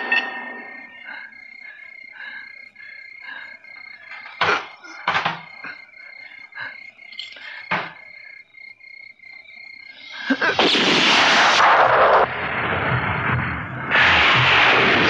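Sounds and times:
high chirring: 0:00.0 - 0:10.2
loud rushing blast: 0:10.6 - 0:15.0.

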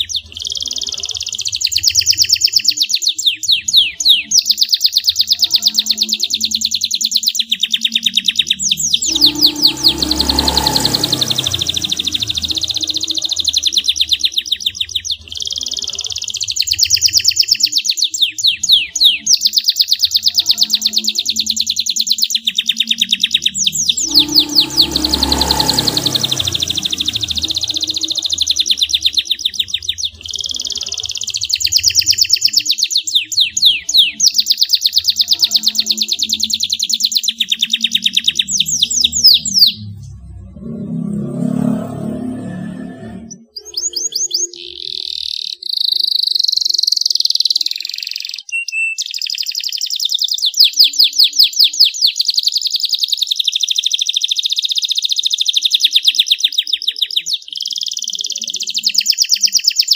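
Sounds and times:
canary singing trills: 0:00.0 - 0:59.9
low noise: 0:08.6 - 0:14.0, 0:23.6 - 0:29.2.

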